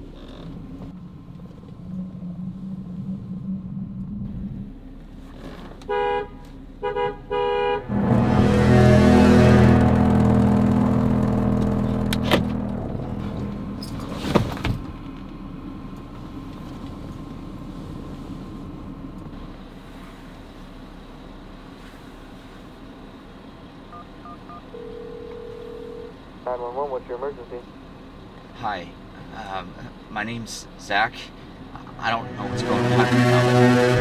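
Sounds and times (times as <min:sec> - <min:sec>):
car engine rumbling: 0:00.0 - 0:34.0
car horn blast: 0:05.8 - 0:13.8, 0:31.8 - 0:34.0.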